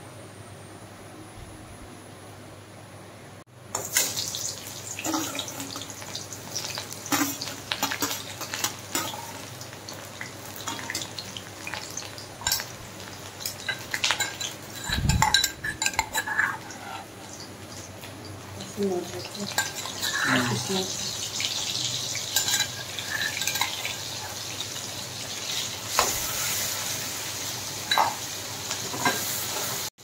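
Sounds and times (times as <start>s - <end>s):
vegetables sizzling in a pan: 3.6s - 30.0s
utensil scraping against pan: 13.4s - 17.5s, 22.3s - 24.4s.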